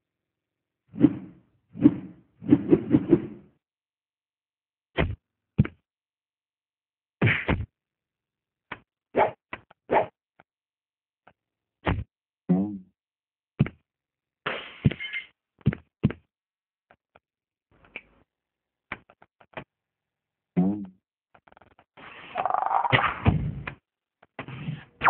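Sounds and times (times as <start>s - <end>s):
cartoon hits and thwacks: 5.0s - 5.8s, 7.2s - 7.7s, 11.8s - 12.8s, 22.9s - 23.8s.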